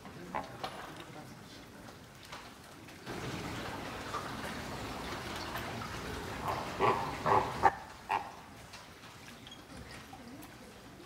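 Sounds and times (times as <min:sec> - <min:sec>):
loud animal calls: 0:06.5 - 0:08.4.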